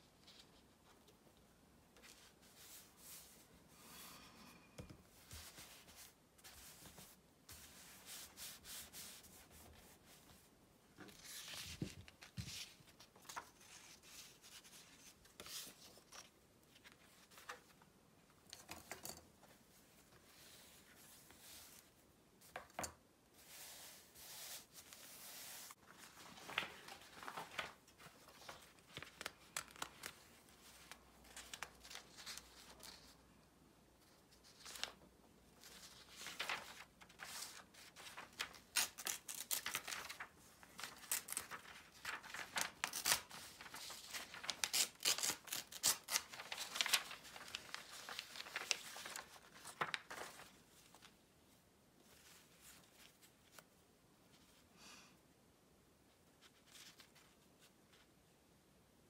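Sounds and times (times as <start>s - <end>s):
hands rubbing paper: 36.4s - 36.7s, 41.1s - 50.4s.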